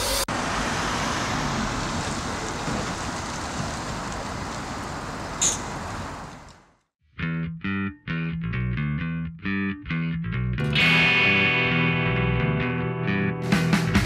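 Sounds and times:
distant traffic hiss: 0:00.0 - 0:06.8.

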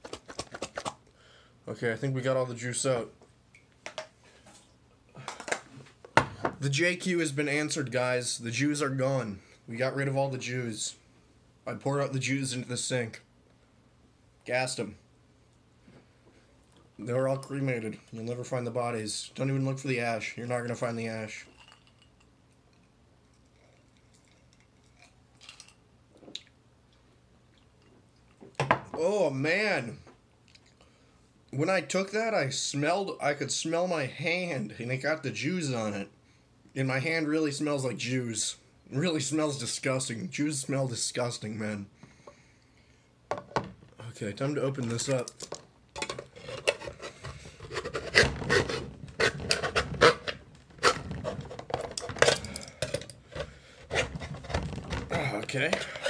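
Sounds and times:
knife scraping tin can lid: 0:46.3 - 0:52.3, 0:52.9 - 0:54.6.

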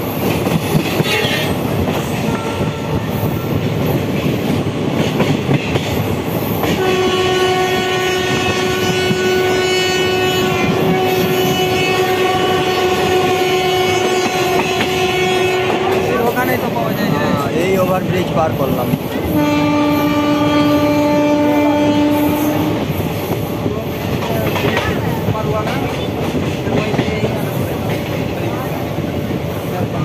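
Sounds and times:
train wheels clattering on track: 0:00.0 - 0:30.0
train horn: 0:02.2 - 0:03.2, 0:06.7 - 0:16.3, 0:19.2 - 0:22.9.

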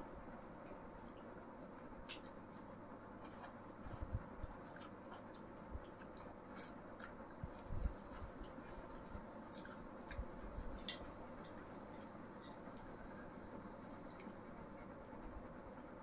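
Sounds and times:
chewing: 0:02.0 - 0:07.3, 0:08.1 - 0:13.0.

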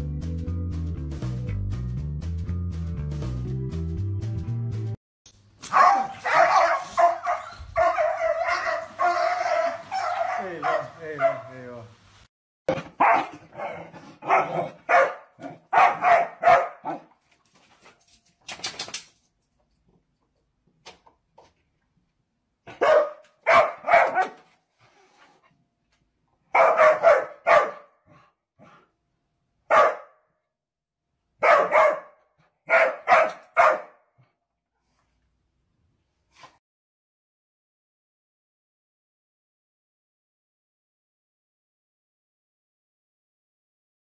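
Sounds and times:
dog barking: 0:05.7 - 0:11.6, 0:13.0 - 0:17.1, 0:22.6 - 0:24.5, 0:26.5 - 0:28.2, 0:29.7 - 0:30.2, 0:31.4 - 0:34.1.

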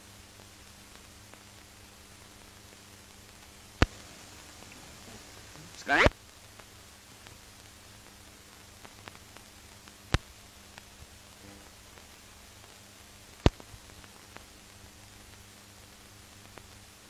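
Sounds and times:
film soundtrack hiss and crackle: 0:00.0 - 0:17.0.

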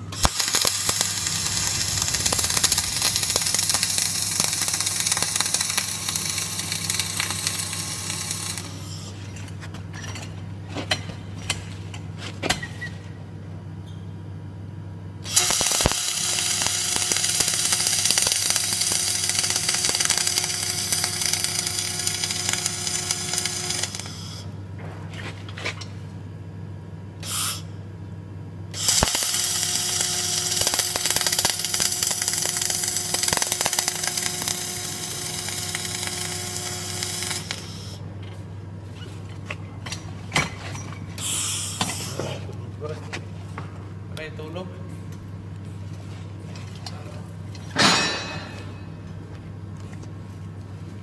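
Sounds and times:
welding arc crackling: 0:00.0 - 0:08.9, 0:15.3 - 0:24.4, 0:28.8 - 0:38.0
low machine hum: 0:00.0 - 0:51.0.

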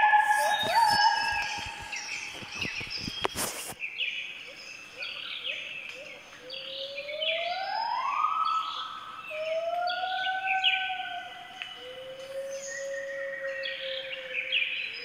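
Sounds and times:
gibbon whooping calls: 0:00.0 - 0:02.1
high bird-like chirps: 0:00.0 - 0:03.8.

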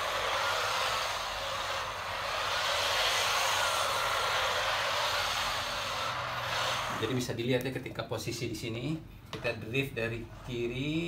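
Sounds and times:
small electric motor whine: 0:00.0 - 0:07.1.

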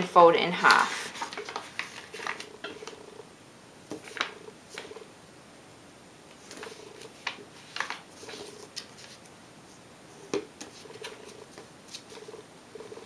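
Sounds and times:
paper being folded and creased: 0:00.6 - 0:03.0, 0:04.0 - 0:04.9, 0:06.4 - 0:09.3, 0:10.6 - 0:12.4.

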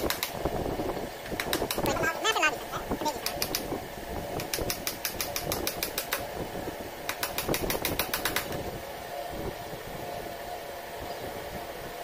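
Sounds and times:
small hammer tapping nails: 0:03.2 - 0:03.7, 0:04.4 - 0:06.2, 0:07.1 - 0:08.5.

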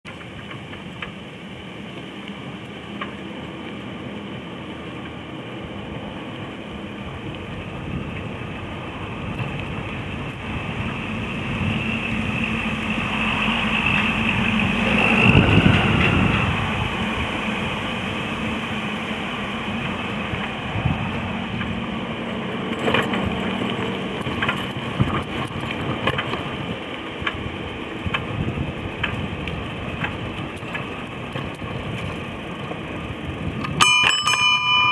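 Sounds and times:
rattling clicks: 0:21.0 - 0:23.4, 0:24.2 - 0:26.4, 0:30.6 - 0:32.6, 0:33.6 - 0:34.9.

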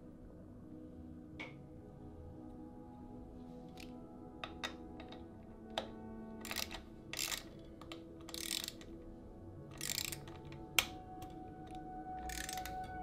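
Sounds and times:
soft background music: 0:00.0 - 0:13.0
ratchet wrench ratcheting: 0:06.4 - 0:07.6, 0:08.2 - 0:08.9, 0:09.7 - 0:10.9, 0:12.2 - 0:13.0.

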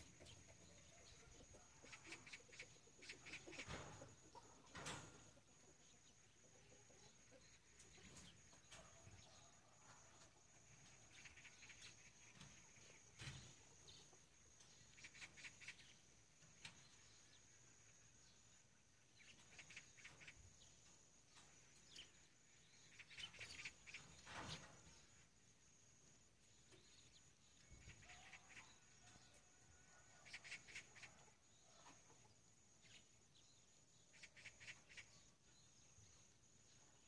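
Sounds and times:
bird chirps: 0:10.8 - 0:25.2.

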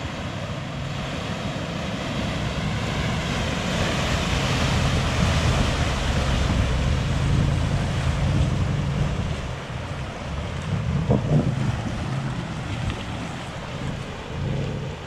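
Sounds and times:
vehicle splashing through floodwater: 0:00.0 - 0:15.0
wind buffeting microphone: 0:01.8 - 0:15.0
low rumble: 0:04.0 - 0:15.0.

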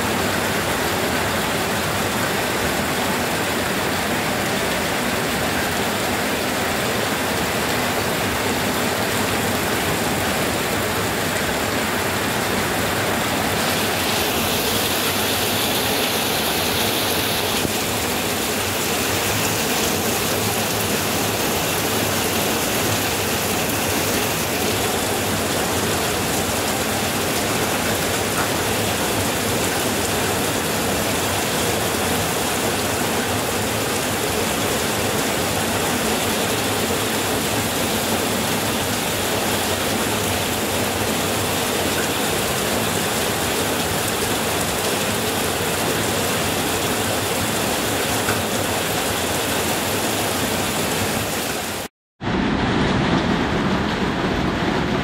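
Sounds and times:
heavy rain pouring: 0:00.0 - 0:55.0.

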